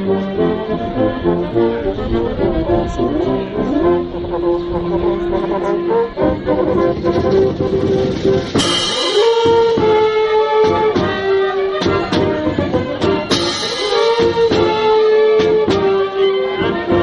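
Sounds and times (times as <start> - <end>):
military band playing: 0.0 - 17.0
drum beats: 6.5 - 17.0.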